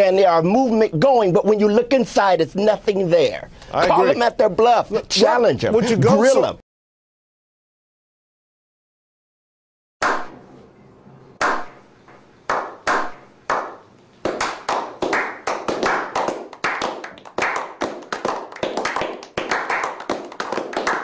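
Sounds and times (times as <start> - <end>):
people clapping: 11.4 - 11.7, 12.5 - 21.0
slow hand claps: 11.4 - 21.0.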